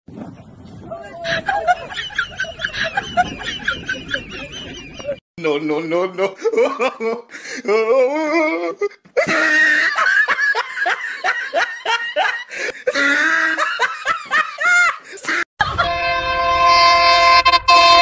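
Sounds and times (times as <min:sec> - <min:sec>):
person laughing: 0:01.1 - 0:05.2, 0:06.2 - 0:16.0.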